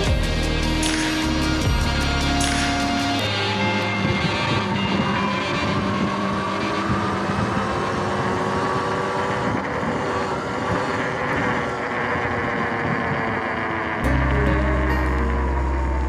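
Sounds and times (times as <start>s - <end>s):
electric motor whine: 0.0s - 16.0s
wind on microphone: 3.6s - 14.1s.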